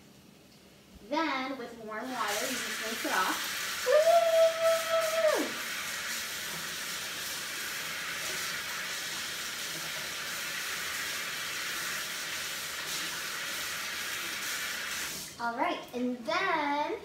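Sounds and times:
hands being rinsed: 2.0s - 15.4s.

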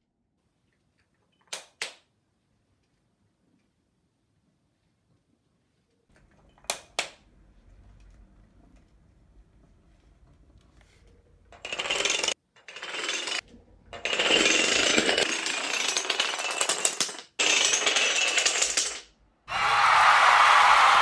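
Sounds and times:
wooden dominoes toppling clatter: 11.6s - 13.4s, 14.0s - 19.1s.

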